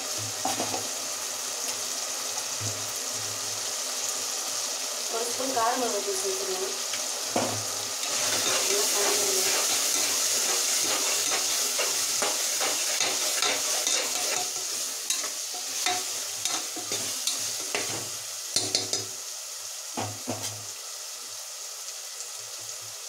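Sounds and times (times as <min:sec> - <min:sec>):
food sizzling in oil: 0:00.0 - 0:23.0
spoon stirring and scraping pan: 0:08.0 - 0:19.2.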